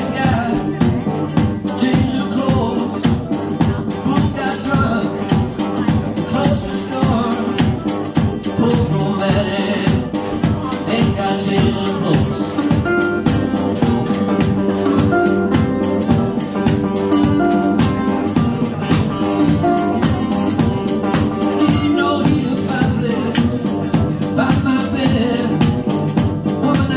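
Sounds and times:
resonator guitar: 0:00.0 - 0:26.9
held melody notes: 0:09.7 - 0:24.3.

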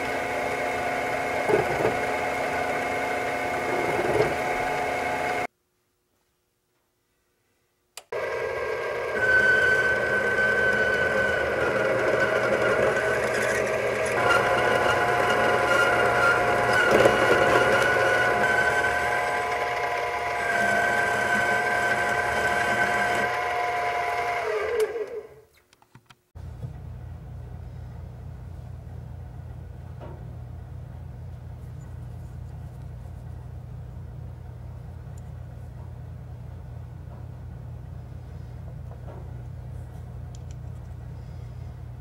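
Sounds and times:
lathe motor whining: 0:00.0 - 0:05.5, 0:08.1 - 0:25.4
steady low hum: 0:26.4 - 0:42.0.

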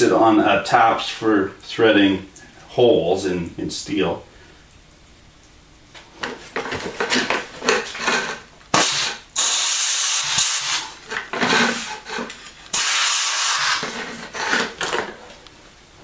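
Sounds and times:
loud hissing bursts: 0:08.7 - 0:12.0, 0:12.7 - 0:14.2.

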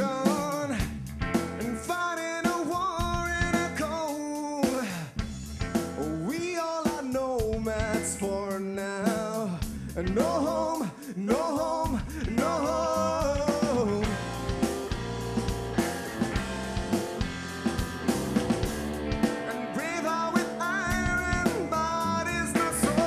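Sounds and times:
man singing: 0:00.0 - 0:01.0, 0:01.6 - 0:05.2, 0:06.0 - 0:14.4, 0:19.3 - 0:23.0
rock band playing: 0:00.0 - 0:23.0.

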